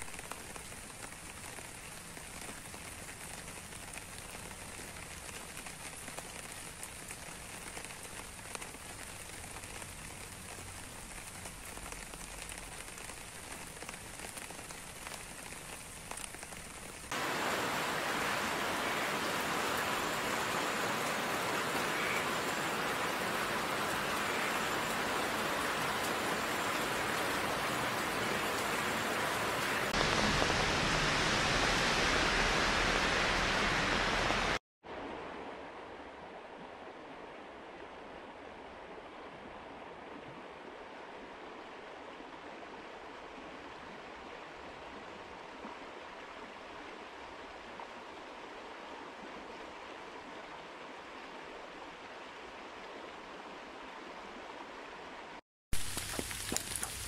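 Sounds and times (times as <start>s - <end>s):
drops dripping onto leaves: 0.0s - 17.2s, 55.8s - 57.0s
steady rain: 0.0s - 57.0s.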